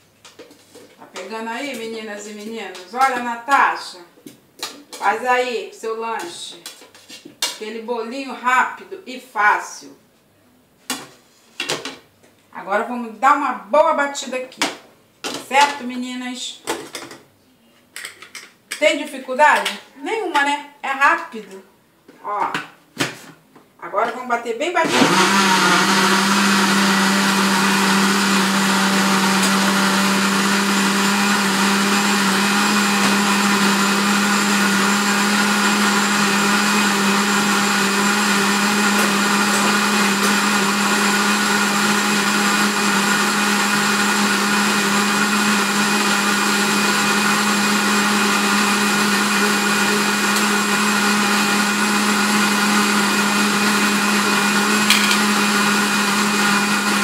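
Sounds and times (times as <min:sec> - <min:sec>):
blender running: 0:24.8 - 0:57.0.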